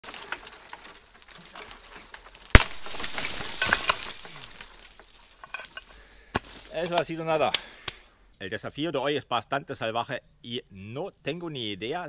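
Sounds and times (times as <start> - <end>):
crackling and rustling in dry brush: 0.0 - 8.1
tree branch snapping: 2.3 - 5.2, 6.4 - 8.1.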